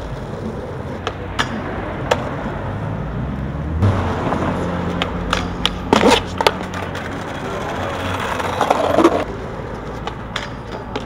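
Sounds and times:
low rumble of street traffic: 0.0 - 11.0
skateboard clacks on concrete: 4.3 - 11.0.

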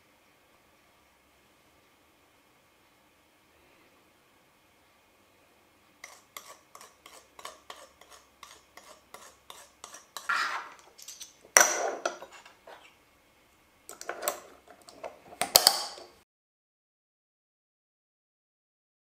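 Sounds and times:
kitchenware scrape: 6.0 - 13.0, 13.9 - 16.2
kitchenware clattering: 6.1 - 12.9, 13.9 - 16.1.

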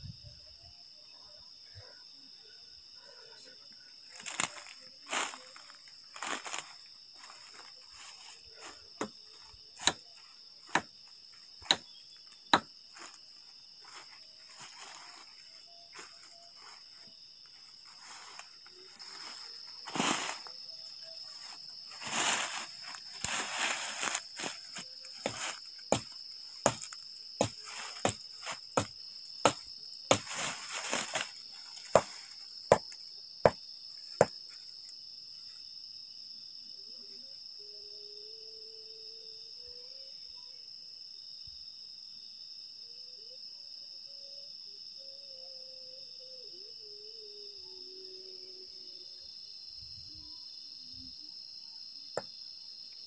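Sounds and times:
crickets trilling: 0.0 - 53.0
rustling: 21.2 - 32.5.

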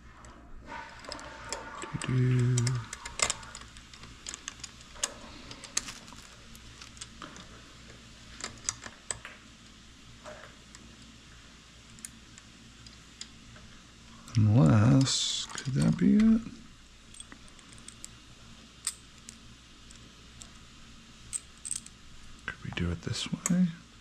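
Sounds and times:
small metal parts clicking: 1.0 - 7.5, 8.3 - 9.3, 17.0 - 18.2, 18.8 - 22.4
low voice-like hum: 1.6 - 3.6, 14.3 - 16.7, 22.5 - 23.9.

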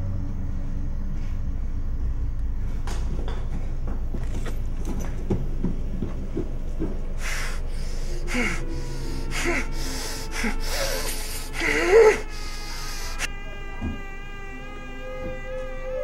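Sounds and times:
steady low drone: 0.0 - 16.0
muffled moans: 6.2 - 16.0
man's hard breaths and snorts: 7.1 - 13.3.

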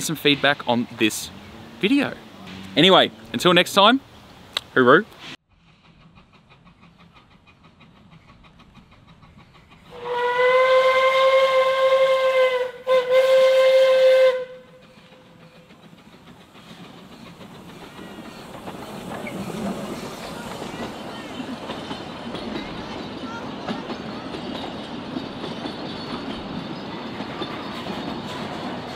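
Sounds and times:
steam locomotive whistle: 9.9 - 15.0.

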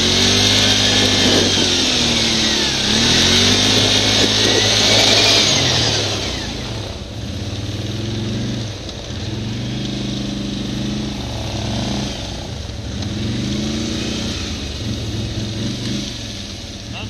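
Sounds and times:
atv engine revving: 0.0 - 17.0.

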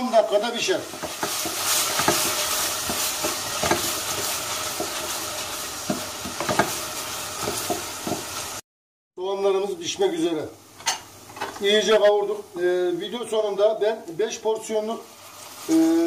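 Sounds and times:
vegetables sizzling in oil: 0.0 - 8.6, 9.7 - 16.0
wooden spoon scraping pot: 0.9 - 8.5.

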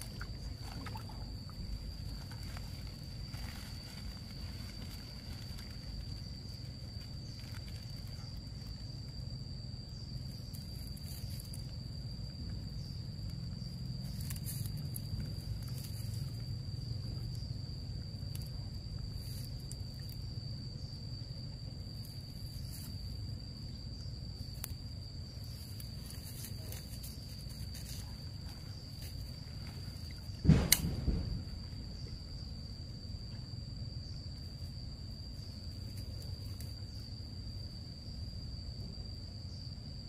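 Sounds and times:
high-pitched insect trill: 0.0 - 40.0
mesh sack rustling: 1.0 - 8.2
low rumble: 27.9 - 33.3.

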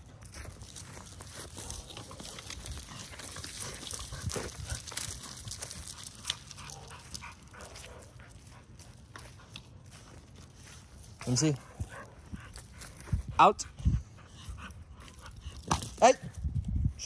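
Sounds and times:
scuffling in dry leaves: 0.0 - 5.9
puppy panting: 1.4 - 9.8, 11.6 - 15.6.

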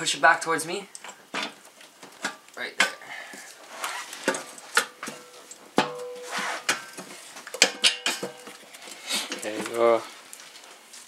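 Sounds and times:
metal clinks and knocks: 4.2 - 9.7.

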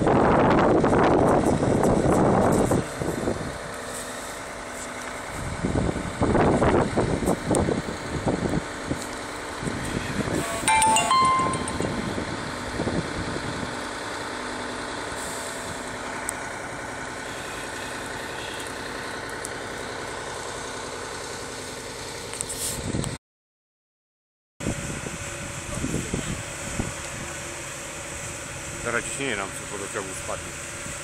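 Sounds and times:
fire engine motor running: 0.0 - 23.2, 24.6 - 31.0.

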